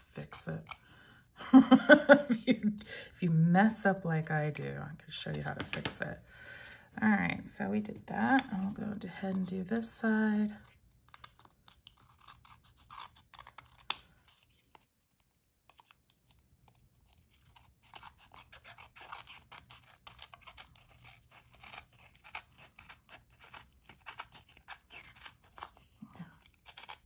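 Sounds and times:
scissors snipping paper: 10.6 - 27.0.

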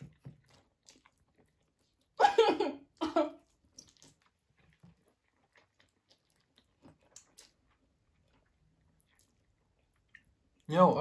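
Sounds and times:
person chewing noodles: 0.0 - 10.7
wet mouth clicks and smacks: 5.6 - 7.7.

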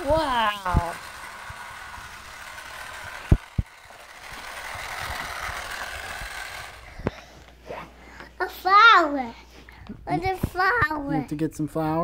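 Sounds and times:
toy mixer whirring: 0.0 - 7.6.

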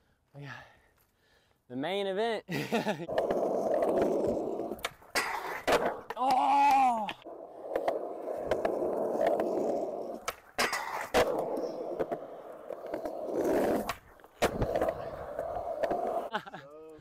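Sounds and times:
skateboard wheels rolling: 3.0 - 16.3
skateboard clacking on ground: 3.1 - 16.2.

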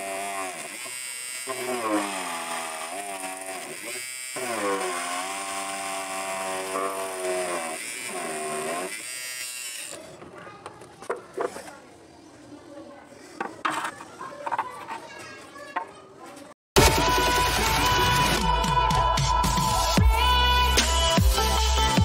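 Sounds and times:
small electric motor whirring: 0.0 - 10.3.

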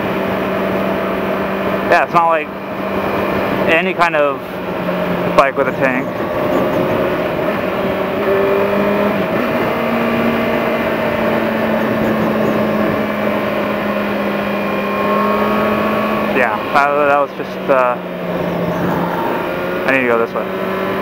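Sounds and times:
motorcycle engine cruising: 0.0 - 21.0
wind rush: 4.4 - 13.9.

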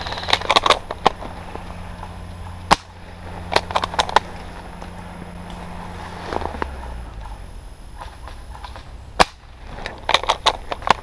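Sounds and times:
airsoft gunshot crack: 7.9 - 11.0.

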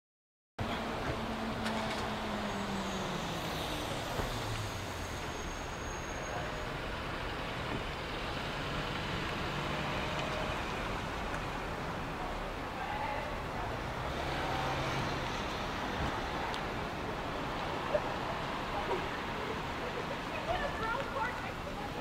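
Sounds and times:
bus engine running: 0.6 - 12.7
cars driving through intersection: 0.6 - 22.0
road noise: 0.6 - 22.0.

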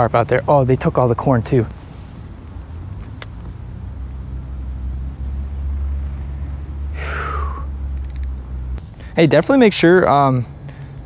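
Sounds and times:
vehicle engine rumbling: 0.0 - 11.0.

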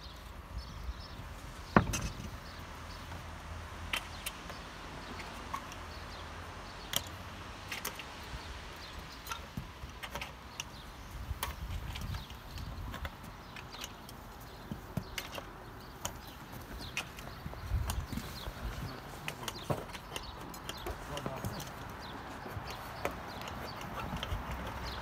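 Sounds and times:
clicks and knocks of metal panels: 1.7 - 2.7.

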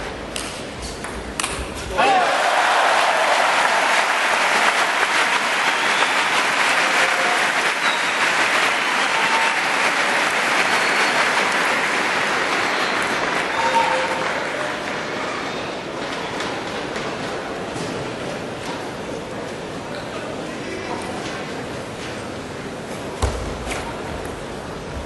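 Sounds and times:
arena crowd applauding: 2.0 - 15.3.

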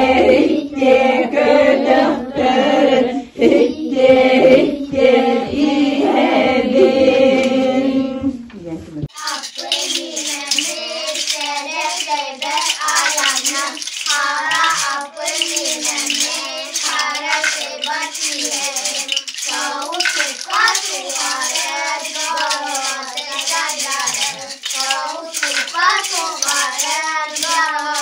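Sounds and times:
children singing folk song: 0.0 - 8.4, 9.1 - 28.0
handheld rattles shaking: 9.1 - 28.0.

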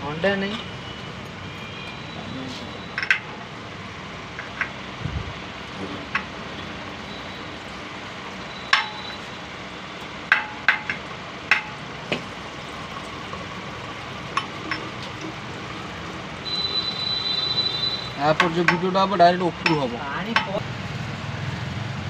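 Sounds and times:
steady background noise: 0.0 - 22.0
hammer tapping on metal: 8.7 - 9.1, 10.3 - 12.2, 18.4 - 20.6.

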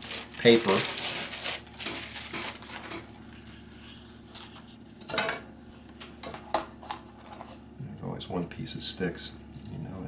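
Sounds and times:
paper rustling: 0.0 - 4.7.

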